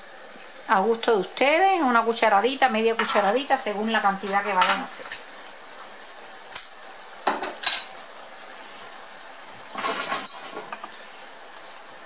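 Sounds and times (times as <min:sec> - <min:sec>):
simmering sauce hiss: 0:00.0 - 0:12.0
spoon scraping a frying pan: 0:09.8 - 0:10.8.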